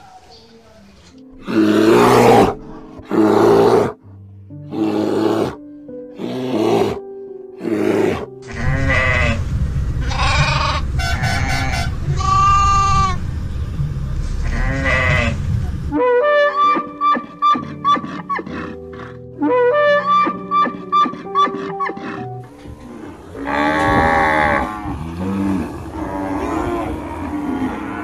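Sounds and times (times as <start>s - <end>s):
background music: 0.7s - 15.3s, 15.9s - 28.0s
bear growling: 1.4s - 4.0s, 4.7s - 5.6s, 6.2s - 7.0s, 7.6s - 10.9s, 16.9s - 28.0s
low rumble of moving herd: 8.5s - 16.0s
goats bleating: 10.0s - 13.2s, 14.4s - 15.4s.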